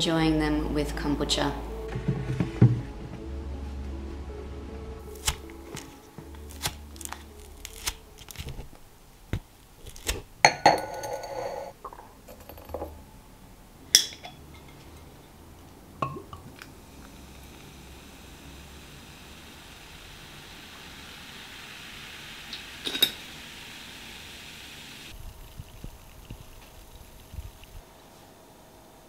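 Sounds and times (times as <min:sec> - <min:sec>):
ice cubes cracking out of tray: 0:05.2 - 0:08.7
ice cubes clinking in glass: 0:22.8 - 0:23.2.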